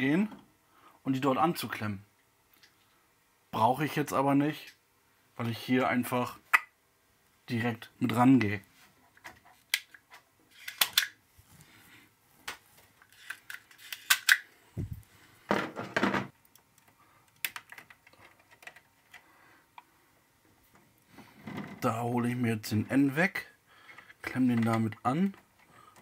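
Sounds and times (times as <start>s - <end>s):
clicks and snaps of wiring work: 8.4s - 11.2s, 12.4s - 14.5s, 16.3s - 19.9s.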